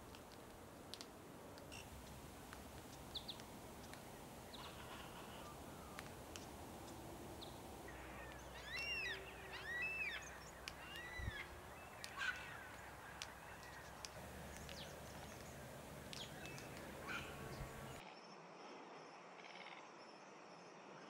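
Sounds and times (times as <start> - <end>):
cockatoo calling: 1.7 - 18.0
sharp clicks: 10.5 - 18.0.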